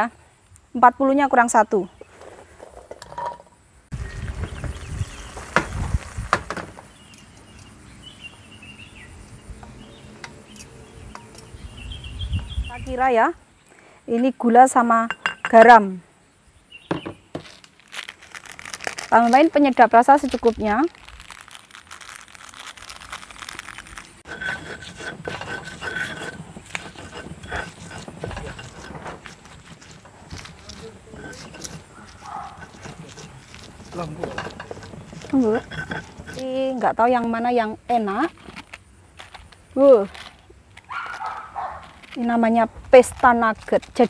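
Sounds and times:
birds chirping: 0:03.9 - 0:06.0, 0:06.7 - 0:14.0, 0:14.8 - 0:17.5, 0:24.3 - 0:38.2
plastic sachet crinkling: 0:17.4 - 0:24.3
stone pestle grinding in mortar: 0:24.2 - 0:37.3.

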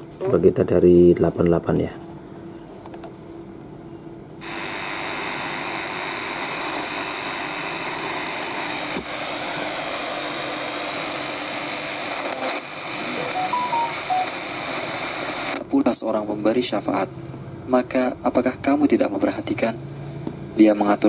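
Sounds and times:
radio static hiss: 0:04.4 - 0:16.0.

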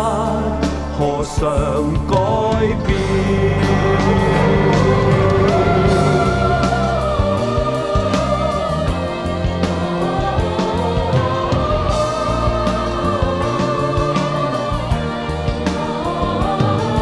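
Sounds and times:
pop song with held melody: 0:00.0 - 0:09.1.

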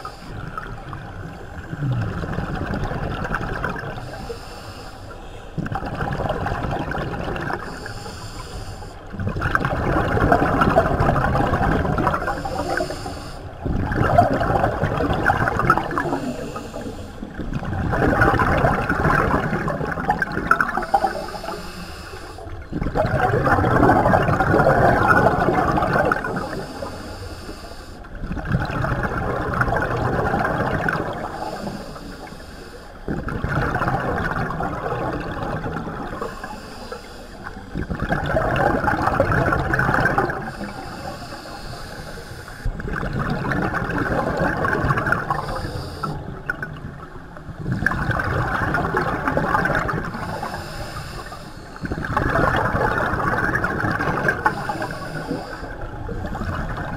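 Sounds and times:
regulator inhale hiss: 0:00.0 - 0:00.5, 0:04.0 - 0:05.5, 0:07.6 - 0:09.1, 0:12.2 - 0:13.6, 0:15.9 - 0:17.4, 0:20.8 - 0:22.6, 0:26.3 - 0:28.2, 0:31.2 - 0:33.1, 0:36.1 - 0:38.0, 0:40.3 - 0:42.8, 0:45.2 - 0:46.4, 0:50.1 - 0:52.1, 0:54.3 - 0:56.2
exhaled bubbles underwater: 0:00.0 - 0:56.9.

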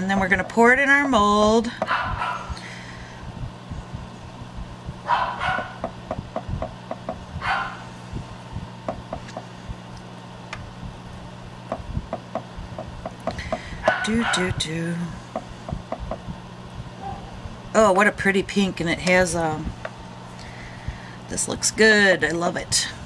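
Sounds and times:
steady low hum: 0:00.0 - 0:23.0
dog barking: 0:01.9 - 0:02.5, 0:05.0 - 0:05.9, 0:07.4 - 0:07.9, 0:13.8 - 0:14.5, 0:17.0 - 0:17.3
stick tapping in melting pot: 0:05.6 - 0:07.2, 0:08.8 - 0:09.5, 0:11.6 - 0:13.6, 0:15.3 - 0:16.3.

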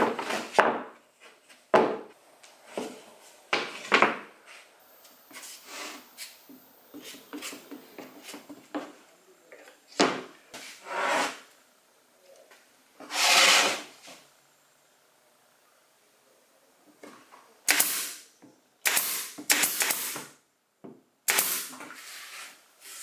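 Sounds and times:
brush strokes: 0:05.3 - 0:08.5
glue spreader scraping: 0:13.0 - 0:13.9.

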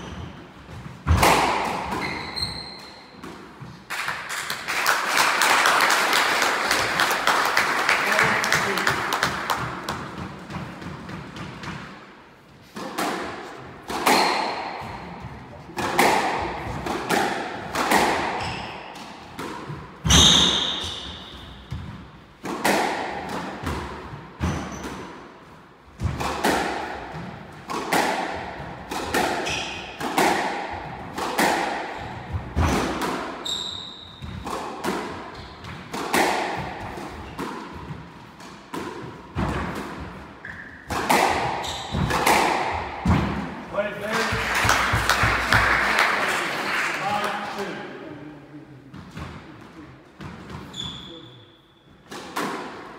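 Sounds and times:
squash ball hitting rackets and walls: 0:00.0 - 0:04.8, 0:06.6 - 0:45.7, 0:48.9 - 0:51.3, 0:51.9 - 0:52.9
shoes squeaking on wooden floor: 0:01.9 - 0:03.7, 0:40.4 - 0:40.8, 0:41.5 - 0:42.1, 0:50.6 - 0:51.4.

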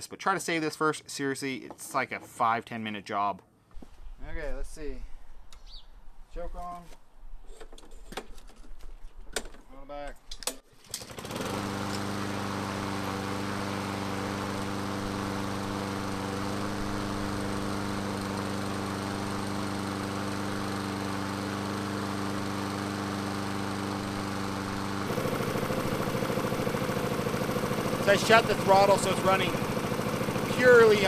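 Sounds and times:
lawn mower engine running: 0:10.8 - 0:31.0.

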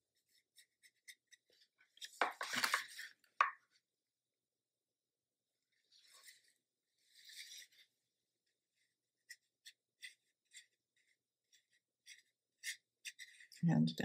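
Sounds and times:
brush strokes on paper: 0:05.6 - 0:13.6.

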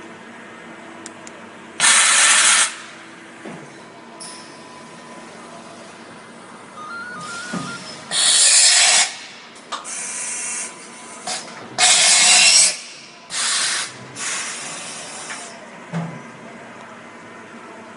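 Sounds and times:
compressed air hiss: 0:13.3 - 0:14.8.

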